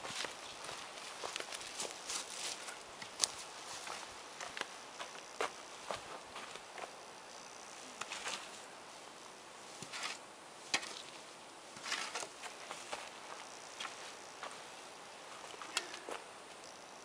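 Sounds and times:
footsteps on forest floor: 0.0s - 6.9s, 11.8s - 14.7s.

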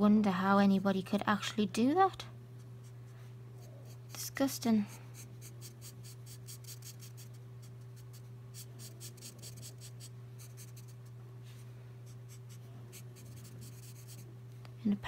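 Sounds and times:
marker scratching on paper: 5.2s - 11.0s, 12.1s - 14.2s.

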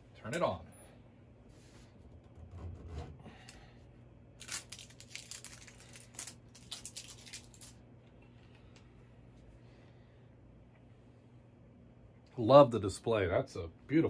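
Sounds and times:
faint low hum: 0.0s - 14.0s
plastic packaging crinkling: 4.4s - 7.8s.

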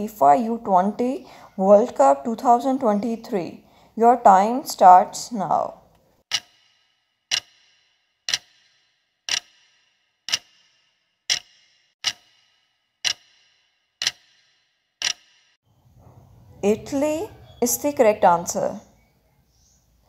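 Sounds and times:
clock ticks with short ring: 6.3s - 15.5s.

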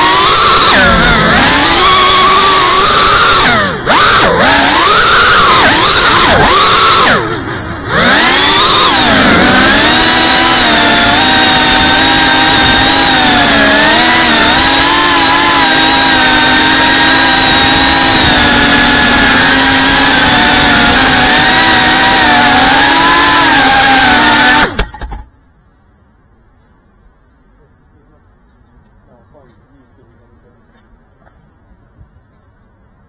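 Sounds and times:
quadcopter motors whining: 0.0s - 25.2s.

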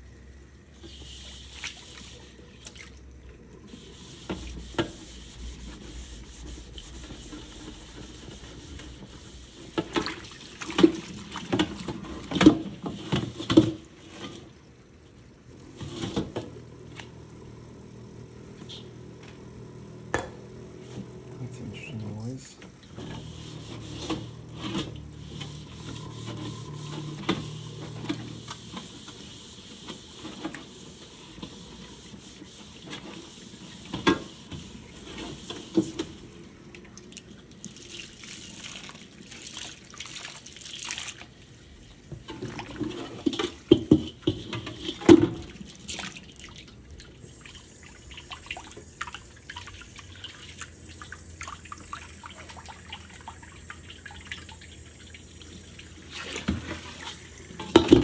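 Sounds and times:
sponge scrubbing: 3.8s - 9.9s, 23.0s - 29.1s
tap water splashing into wok: 56.4s - 58.0s.

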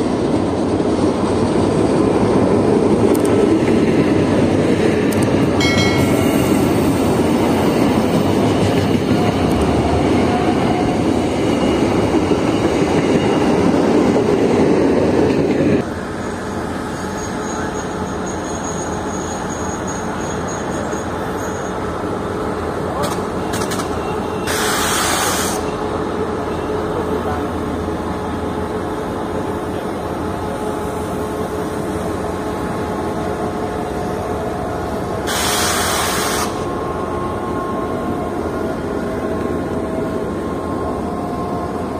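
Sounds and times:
train engine and wheel rumble: 0.0s - 41.9s
loud hiss bursts: 24.5s - 25.7s, 35.2s - 36.6s.

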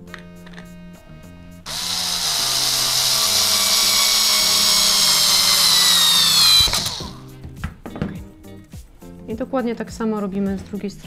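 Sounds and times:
drill motor whine: 1.0s - 7.3s.

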